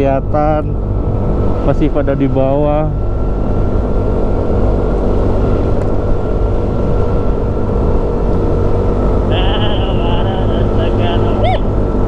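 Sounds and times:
motorcycle engine running: 0.0s - 12.0s
wind rumble on microphone: 0.0s - 12.0s
high-pitched tone: 10.3s - 11.7s.

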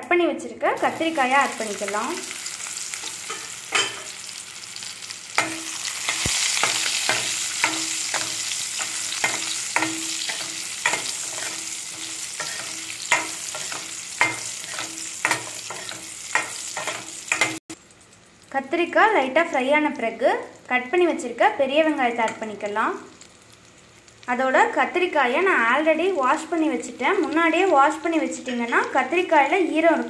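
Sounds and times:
eggplant sizzling in oil: 0.7s - 30.0s
metal spatula scraping pan: 5.4s - 17.6s.

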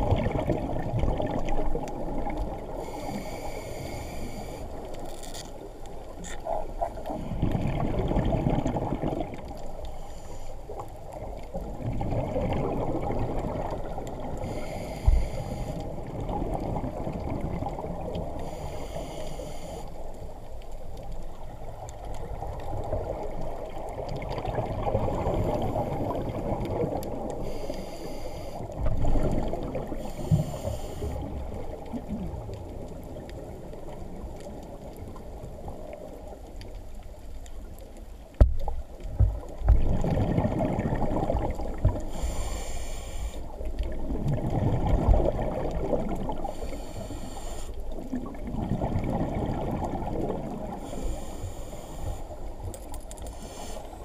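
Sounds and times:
exhaled bubbles rumbling: 0.0s - 3.2s, 6.4s - 9.9s, 10.8s - 14.5s, 15.8s - 18.4s, 20.9s - 27.4s, 28.7s - 37.0s, 38.5s - 42.4s, 43.6s - 46.9s, 47.9s - 50.9s
muffled water wash: 0.0s - 54.0s
scuba regulator breathing: 2.7s - 5.3s, 9.9s - 10.8s, 14.3s - 16.0s, 18.4s - 20.0s, 27.4s - 28.8s, 30.0s - 31.5s, 42.0s - 43.7s, 46.4s - 48.1s, 50.7s - 52.6s, 53.2s - 54.0s.

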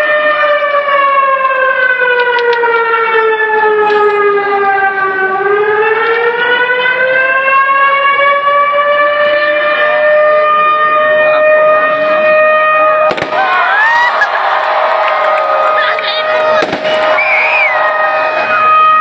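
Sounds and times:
siren wailing: 0.0s - 19.0s.

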